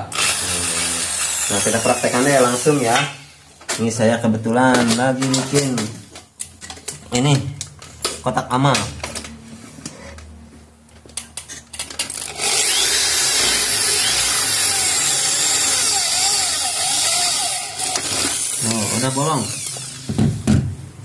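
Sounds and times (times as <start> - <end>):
electric drill boring through metal: 0.1 - 3.3, 12.0 - 20.2.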